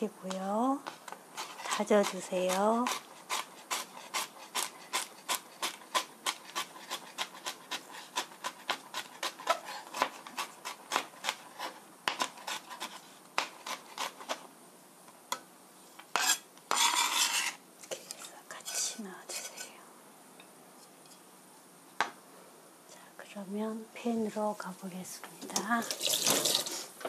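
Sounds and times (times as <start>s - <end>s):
knife blade scraping board: 0.8s - 14.4s, 16.0s - 19.7s
knife chopping on cutting board: 0.8s - 14.4s.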